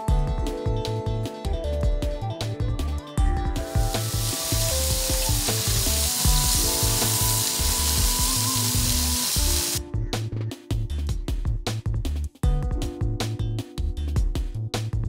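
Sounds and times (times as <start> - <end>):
music with bass beat: 0.0 - 15.0
patties sizzling on a grill: 3.7 - 9.8.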